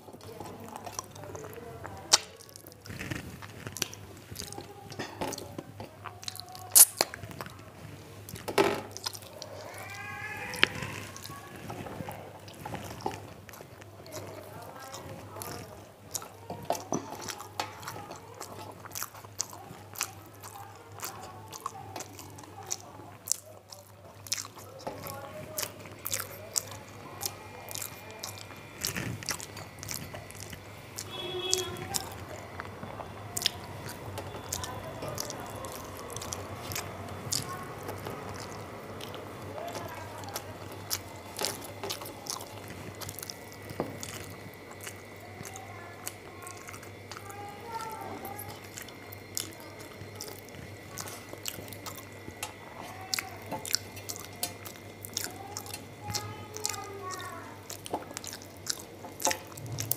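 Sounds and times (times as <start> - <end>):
person chewing and smacking: 0.0 - 59.9
steady low hum: 18.2 - 59.9.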